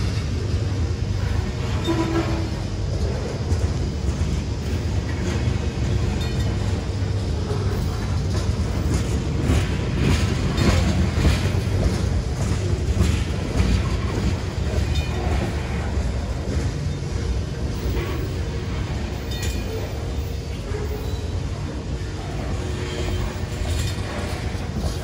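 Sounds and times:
train wheels rumbling on rails: 0.0 - 25.0
wheels clacking over rail joints: 0.0 - 25.0.

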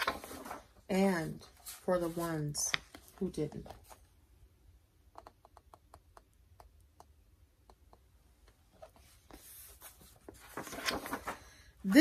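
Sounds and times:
book pages rustling: 0.0 - 4.2, 8.7 - 11.6.

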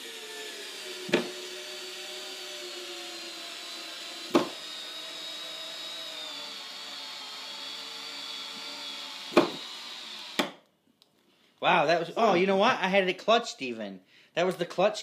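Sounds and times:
cordless screwdriver running: 0.0 - 10.4.

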